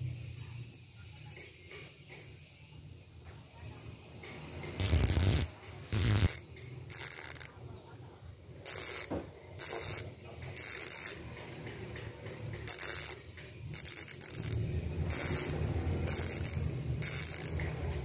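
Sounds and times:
bicycle hub ratchet clicking: 3.8 - 18.0.

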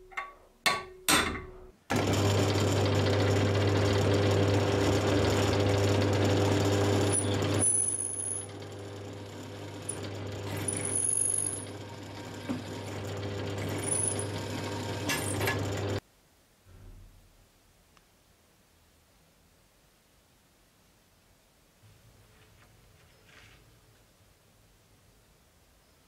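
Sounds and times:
drill press drilling metal: 0.8 - 16.0.

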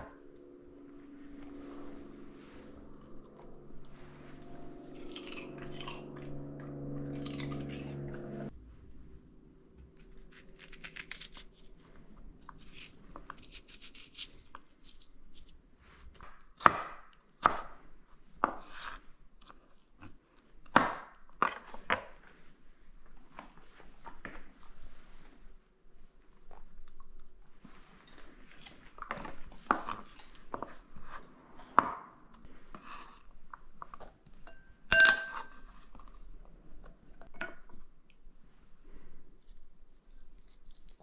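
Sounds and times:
steady hum with crunching: 0.0 - 10.0.

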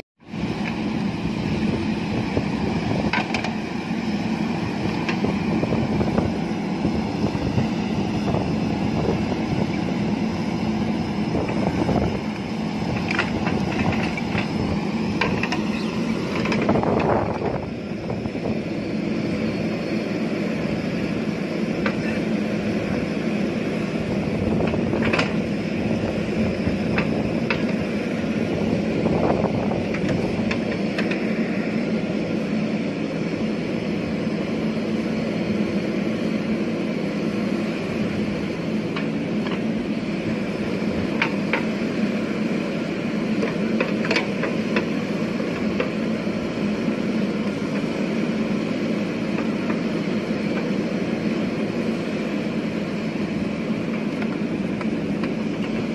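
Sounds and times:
diesel engine under load: 0.0 - 55.9.

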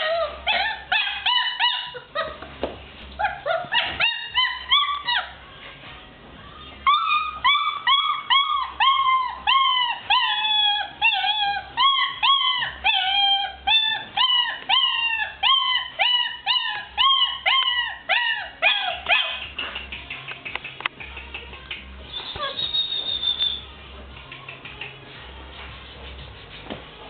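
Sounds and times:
puppy whining and yelping: 0.0 - 2.5, 3.1 - 5.4, 6.8 - 19.5, 22.2 - 23.6.

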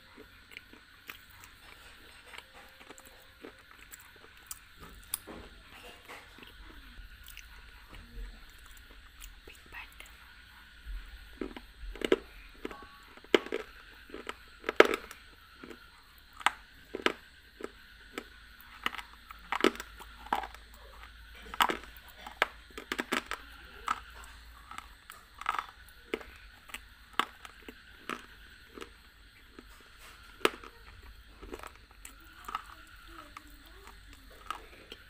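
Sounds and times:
crunchy chewing: 0.0 - 35.0.

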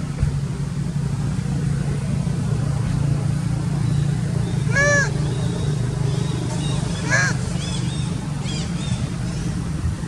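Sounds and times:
steady low hum: 0.0 - 10.0
monkey cry: 4.6 - 5.3, 6.8 - 8.7.

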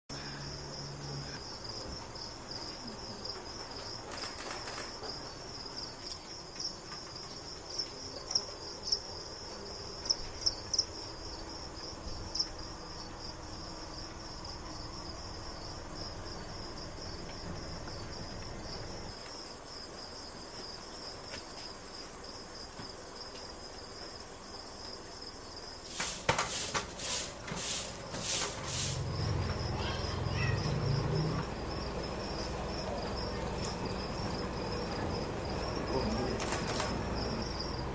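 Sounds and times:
crickets chirping: 0.1 - 37.9
broom sweeping a floor: 25.8 - 29.4.

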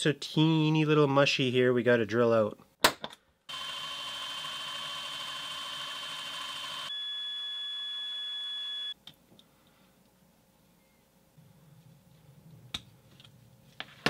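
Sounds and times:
electric drill whining: 3.5 - 6.9.

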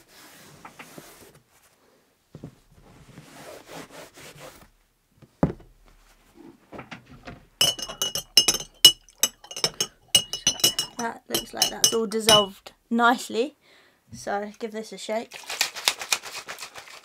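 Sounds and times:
glass jar set down: 7.6 - 12.5
metal spoon clinking against glass: 7.6 - 12.6.

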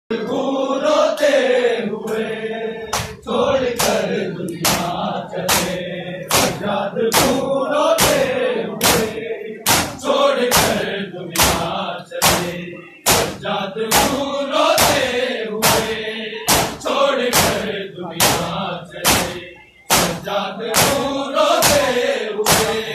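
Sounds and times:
crowd chanting a lament: 0.1 - 22.9
hands slapping chests: 2.9 - 3.2, 3.8 - 7.4, 8.0 - 10.8, 11.4 - 14.2, 14.8 - 15.9, 16.5 - 22.8.

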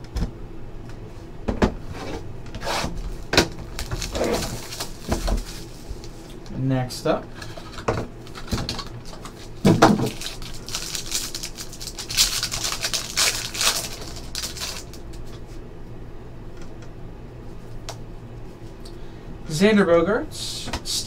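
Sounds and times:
foil pack crinkling and tearing: 3.4 - 6.3, 8.2 - 15.4
cards rustling: 3.7 - 6.3, 8.2 - 15.4.

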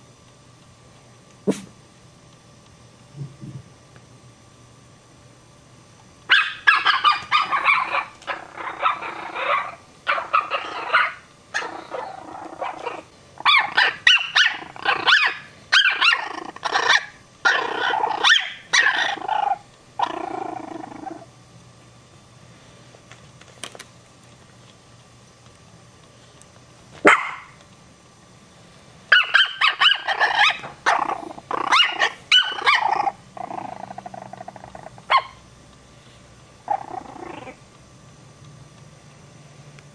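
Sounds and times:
dog barking: 6.3 - 8.1, 8.8 - 11.7, 27.0 - 27.5, 29.1 - 31.0, 35.1 - 35.4.

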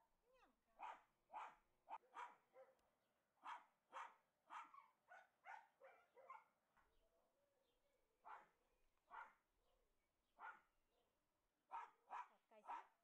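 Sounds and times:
dog barking: 0.8 - 2.8, 3.4 - 6.6, 8.2 - 9.4, 10.4 - 10.7, 11.7 - 13.0.

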